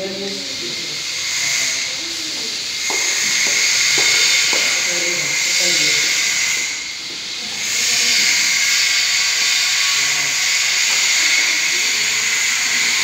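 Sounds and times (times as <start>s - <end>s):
faint voices: 0.0s - 3.4s, 9.8s - 13.0s
loud steady hiss: 0.0s - 13.0s.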